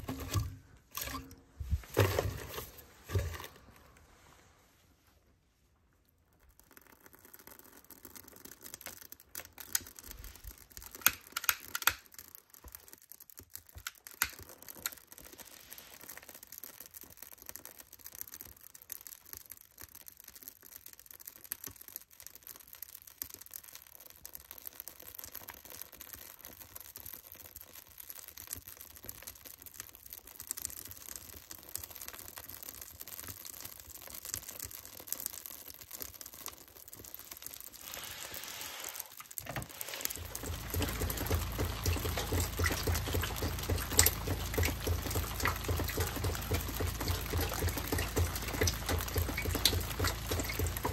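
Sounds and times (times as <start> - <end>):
wood fire crackling: 0.0 - 4.4, 6.1 - 50.9
fire pops: 25.2 - 50.9.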